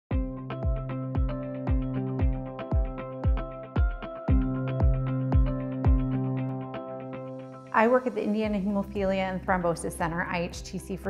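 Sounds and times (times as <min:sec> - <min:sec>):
intro music with steady beat: 0:00.1 - 0:07.7.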